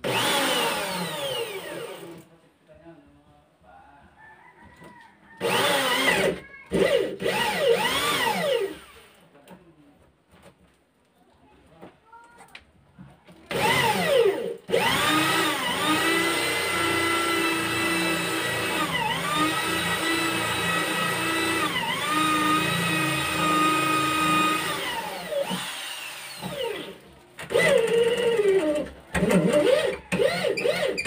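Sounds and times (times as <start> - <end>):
electric drill boring into wood: 0.0 - 2.2, 5.4 - 9.2, 13.5 - 31.0.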